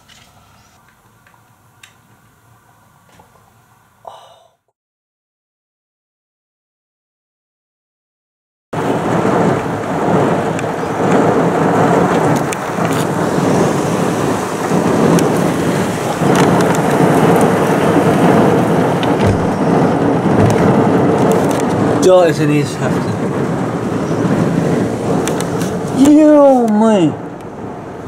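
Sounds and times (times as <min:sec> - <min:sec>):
heavy rain pouring: 0:08.8 - 0:28.0
thunder rumbling: 0:08.8 - 0:28.0.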